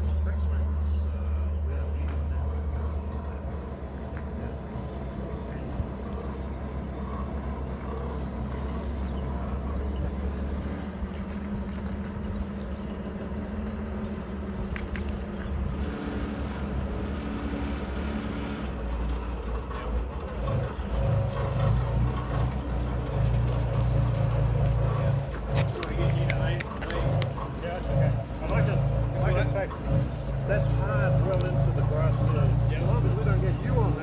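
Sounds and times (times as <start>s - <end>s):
tow tractor engine running: 0.0s - 34.0s.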